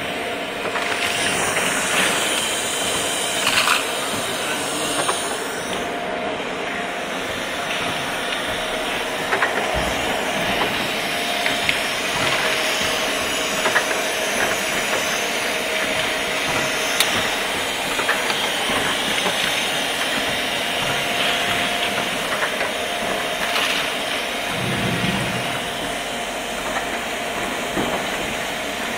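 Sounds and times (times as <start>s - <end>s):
pneumatic clicks and clacks: 0.6s - 5.9s, 7.6s - 28.9s
compressed air hiss: 1.1s - 5.9s.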